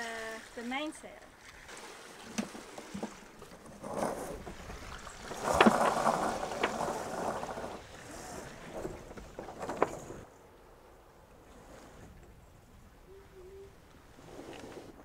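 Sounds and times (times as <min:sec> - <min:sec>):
rope rasping through blocks: 0:05.3 - 0:10.2.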